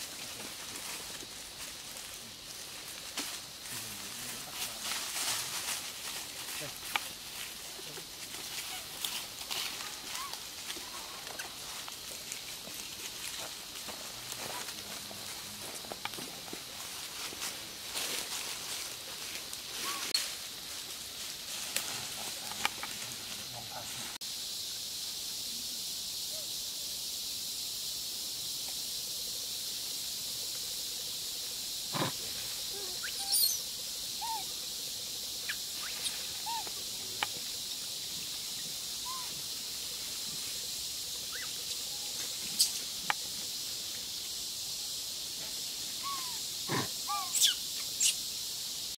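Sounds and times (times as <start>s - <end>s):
steady high hiss: 0.0s - 49.0s
animal calls and chirps: 8.5s - 11.6s, 19.7s - 20.2s, 31.9s - 34.5s, 35.4s - 37.1s, 38.5s - 39.5s, 41.1s - 42.9s, 45.9s - 48.3s.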